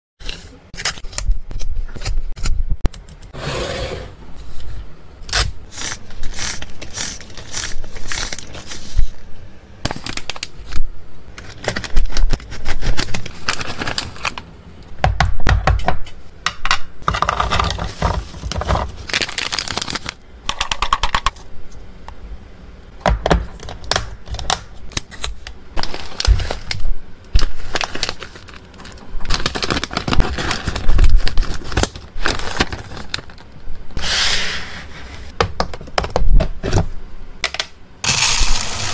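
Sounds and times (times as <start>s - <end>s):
plastic and foil bags crinkling: 5.7s - 9.2s, 9.9s - 10.8s, 11.4s - 14.5s, 17.4s - 21.3s, 24.9s - 33.6s
dry treats rattling into plastic boxes: 27.8s - 33.4s.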